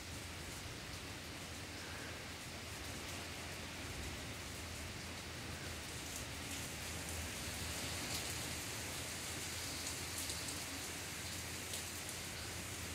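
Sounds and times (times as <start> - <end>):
heavy rain hissing: 0.0 - 12.9
raindrops hitting awning: 2.6 - 12.9.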